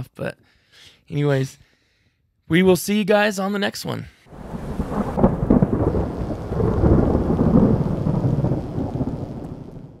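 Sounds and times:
low rumble of thunder: 0:04.3 - 0:10.0
rain: 0:04.3 - 0:10.0.

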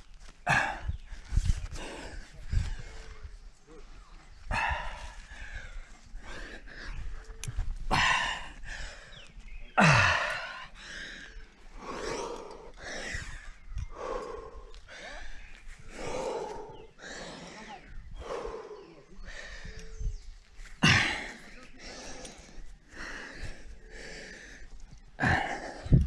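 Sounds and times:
person breathing hard: 0:00.5 - 0:03.3, 0:07.9 - 0:20.2, 0:20.8 - 0:26.0
person grunting: 0:09.8 - 0:10.4, 0:20.8 - 0:21.4.

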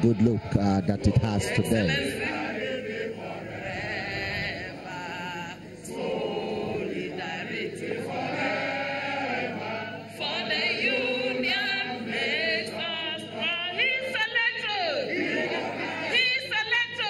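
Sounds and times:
group singing in chorus: 0:00.0 - 0:17.0
woman singing into a microphone: 0:10.2 - 0:15.1, 0:16.1 - 0:17.0.

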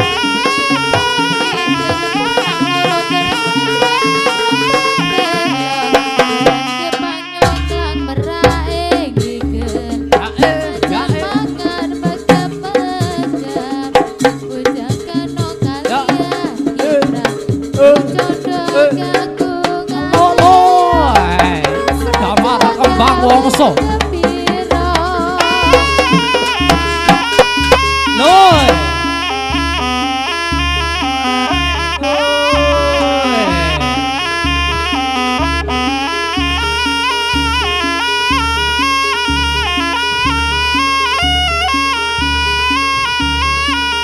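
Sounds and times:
hand drums beating fast: 0:00.0 - 0:44.0
held melodic notes: 0:00.0 - 0:44.0
deep bass: 0:27.7 - 0:36.8.

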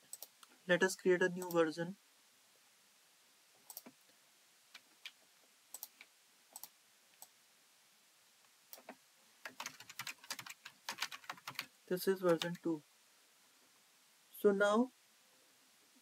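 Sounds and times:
keyboard keys clicking: 0:08.8 - 0:11.7.

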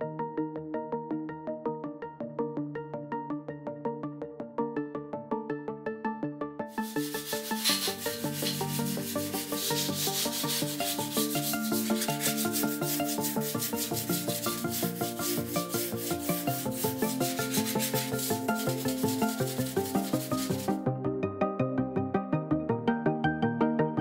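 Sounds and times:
sanding block rubbing metal: 0:06.7 - 0:20.8
background music with beat: 0:06.7 - 0:21.2.

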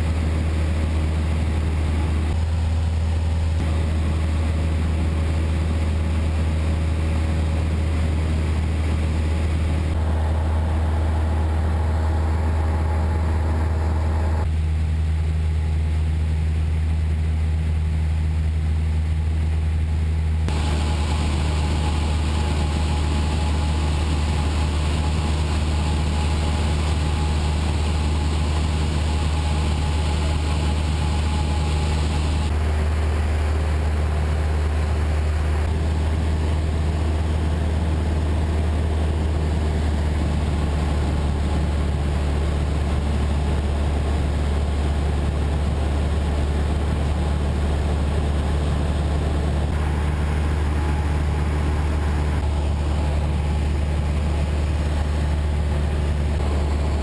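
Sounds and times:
light aircraft cabin drone: 0:00.0 - 0:57.0.

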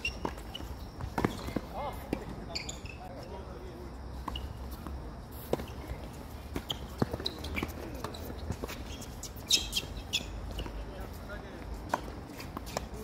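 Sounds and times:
rackets striking tennis ball: 0:00.0 - 0:02.5
tennis ball bouncing on court: 0:00.0 - 0:02.5, 0:04.2 - 0:10.8.

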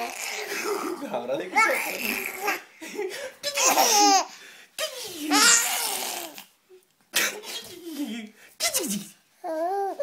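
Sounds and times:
baby laughing and babbling: 0:00.0 - 0:02.7, 0:03.4 - 0:04.3, 0:04.9 - 0:06.5.

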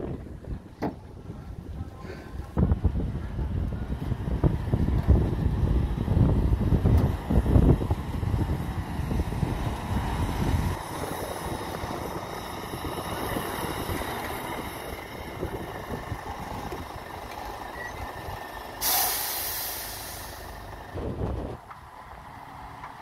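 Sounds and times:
diesel truck engine running: 0:00.0 - 0:23.0
air brakes hissing: 0:18.8 - 0:20.6.

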